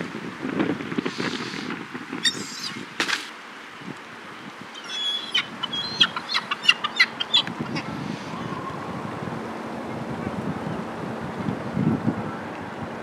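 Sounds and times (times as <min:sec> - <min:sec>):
gulls calling: 0:01.1 - 0:03.1, 0:04.7 - 0:10.9.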